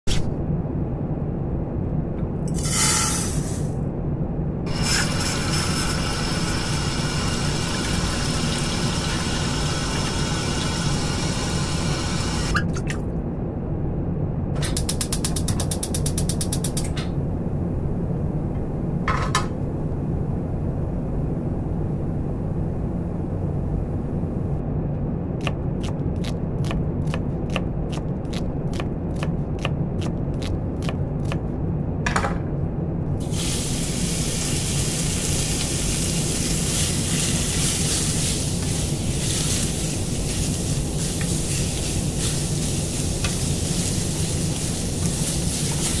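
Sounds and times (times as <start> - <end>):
low mechanical hum: 0.0 - 46.0
hiss: 33.2 - 46.0.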